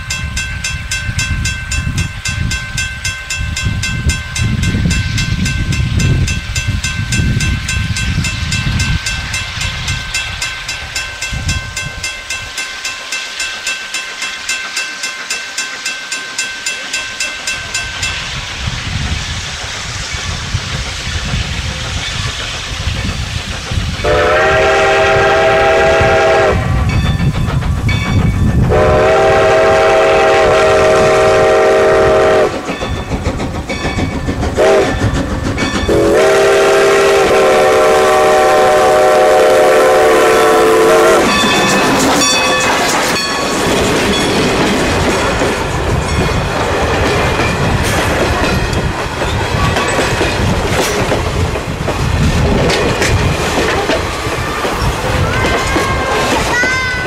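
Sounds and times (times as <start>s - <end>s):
train wheels clattering over rails: 1.4s - 57.0s
steam whistle blasts: 24.0s - 26.9s, 28.7s - 32.6s, 34.6s - 35.0s, 35.9s - 41.4s.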